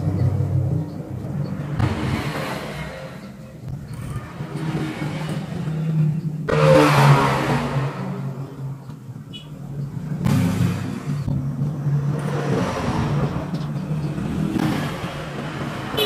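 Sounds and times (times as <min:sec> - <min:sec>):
vehicle engine passing by: 0:03.9 - 0:08.8.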